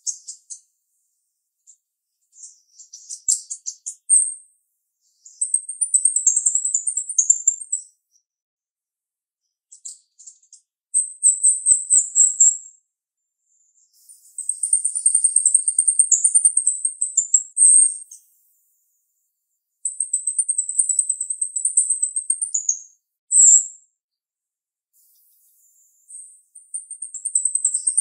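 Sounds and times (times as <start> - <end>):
bird singing: 0.0 - 0.7, 1.7 - 4.4, 5.0 - 8.0, 13.8 - 23.7, 25.0 - 28.0.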